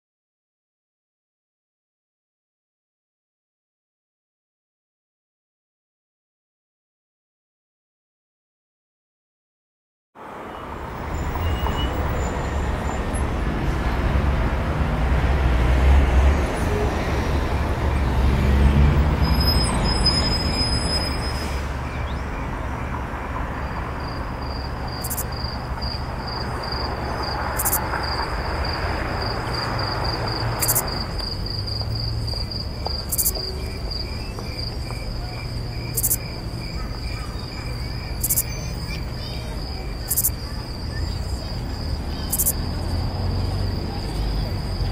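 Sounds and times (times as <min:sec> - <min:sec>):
street traffic rumble: 0:10.2 - 0:44.9
pulsing cricket-like trill: 0:24.0 - 0:44.9.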